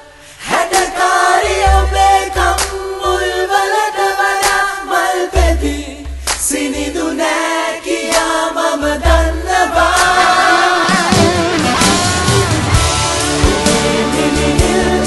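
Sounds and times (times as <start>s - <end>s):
voices singing in harmony: 0.0s - 15.0s
deep bass notes: 11.1s - 15.0s.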